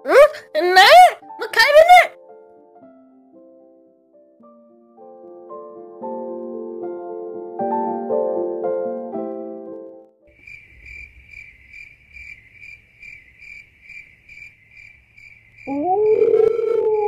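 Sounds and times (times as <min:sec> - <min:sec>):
soft piano music: 0:00.0 - 0:01.5, 0:02.1 - 0:10.3
crickets chirping: 0:10.3 - 0:17.0.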